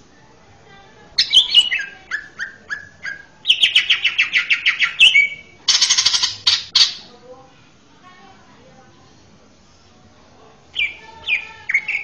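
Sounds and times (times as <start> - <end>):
bird singing: 1.2 - 7.1, 10.7 - 12.0.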